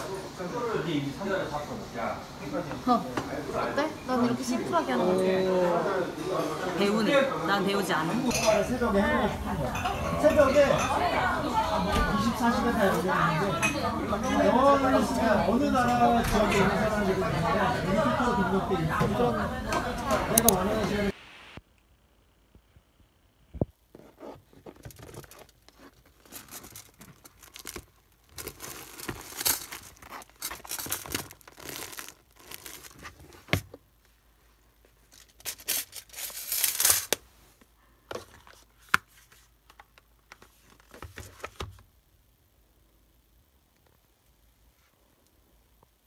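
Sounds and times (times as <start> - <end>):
tissue paper rustling: 24.5 - 33.5.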